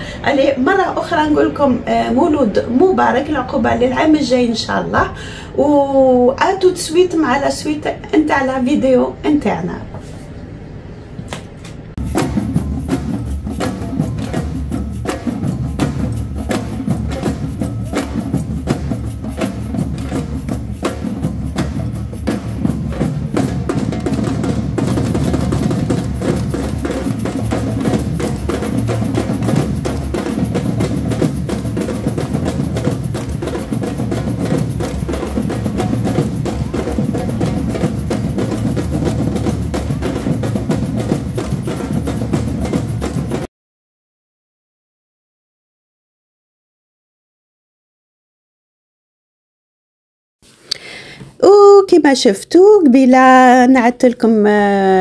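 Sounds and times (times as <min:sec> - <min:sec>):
street drumming band: 0:12.0 - 0:43.5.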